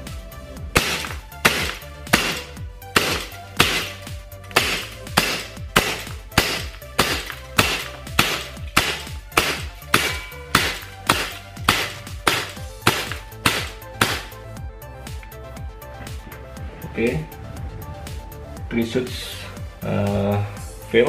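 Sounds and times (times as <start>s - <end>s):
background music: 0.0s - 21.0s
airsoft gun firing: 0.8s - 14.4s.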